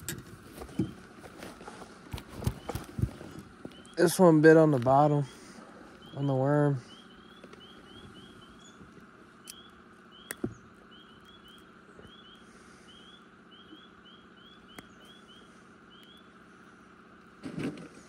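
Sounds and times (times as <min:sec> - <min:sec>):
chorus of rising peeps: 0:05.1 - 0:16.5.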